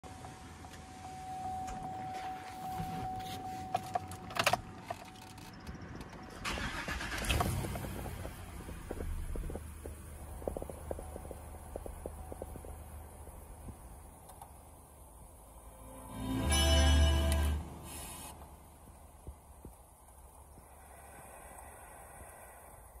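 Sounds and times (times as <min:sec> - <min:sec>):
warning chime tone: 0:00.9 - 0:04.1, 0:15.8 - 0:17.8
keys clicking in ignition: 0:01.7 - 0:08.3
engine cranking and idling: 0:01.8 - 0:15.0.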